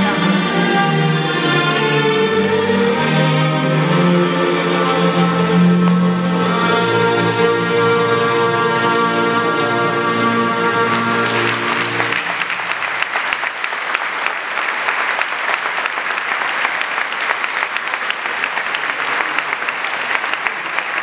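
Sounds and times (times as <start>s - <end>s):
music with sustained chords: 0.0s - 12.6s
audience applause: 9.6s - 21.0s.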